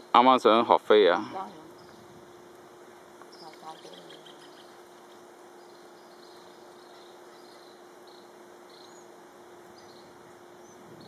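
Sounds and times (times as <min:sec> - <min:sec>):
steady hiss: 0:00.0 - 0:11.0
bird chirps: 0:03.2 - 0:11.0.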